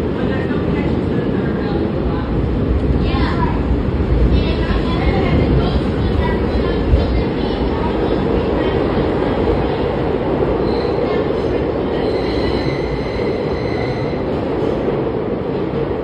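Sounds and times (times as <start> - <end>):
train wheels rumbling on rail: 0.0 - 16.0
high wheel squeal: 12.0 - 14.3.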